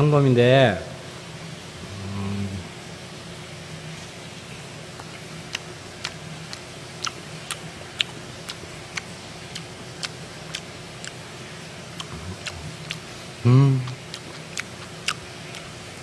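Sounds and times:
low steady hum: 0:00.0 - 0:16.0
wet mouth chewing clicks: 0:05.0 - 0:11.2, 0:11.8 - 0:13.1, 0:13.8 - 0:15.8.

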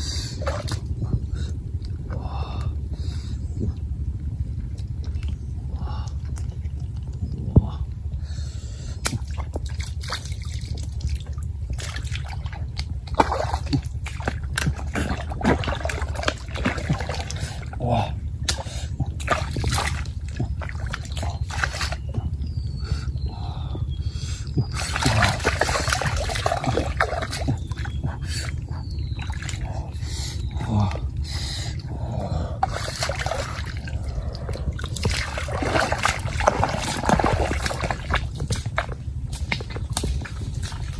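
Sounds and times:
water sloshing and splashing: 0:00.0 - 0:02.6, 0:03.6 - 0:08.2, 0:09.0 - 0:40.9
steady low rumble: 0:00.0 - 0:40.9
hands squelching in wet mud: 0:09.0 - 0:23.2, 0:24.2 - 0:40.9.

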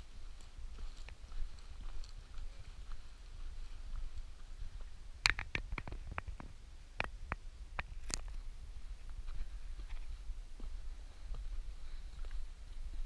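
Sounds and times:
footsteps on rocky path: 0:00.0 - 0:07.2, 0:07.9 - 0:13.0.

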